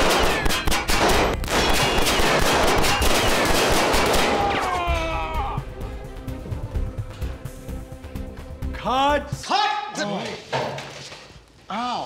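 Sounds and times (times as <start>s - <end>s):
rapid handgun gunfire: 0.0s - 4.4s.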